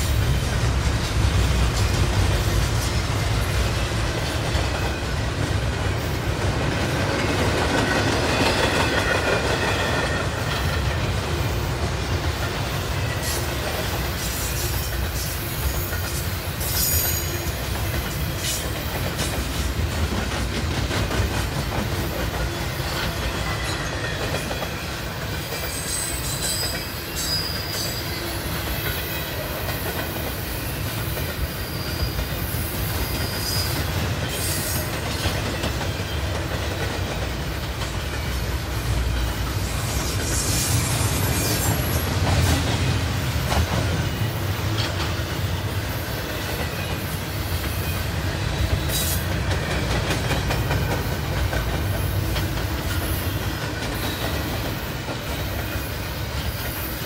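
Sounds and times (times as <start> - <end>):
train wheels rumbling on rail: 0.0 - 57.0
faint high wheel squeals: 16.6 - 17.6, 25.5 - 28.6, 31.5 - 34.9.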